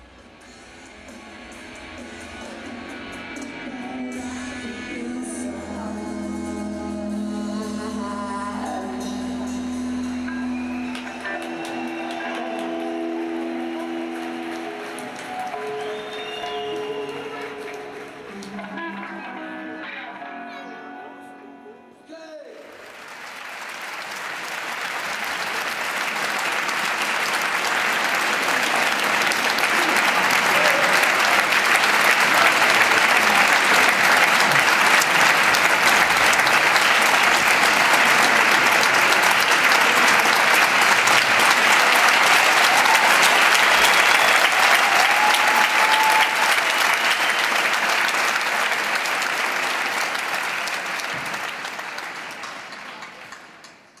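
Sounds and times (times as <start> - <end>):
audience applauding: 9.9 - 19.7, 22.2 - 54.0.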